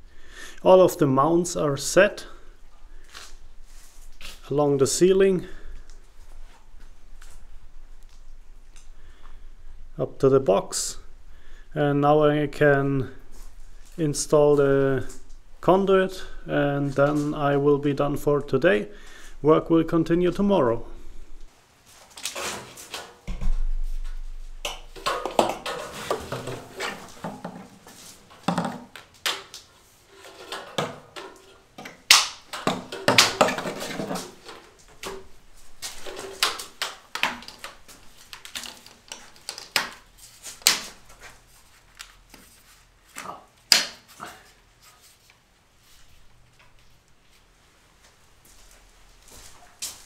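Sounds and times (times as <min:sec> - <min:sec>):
plastic pipe clicking into clips: 0:30.3 - 0:35.2, 0:35.9 - 0:41.1.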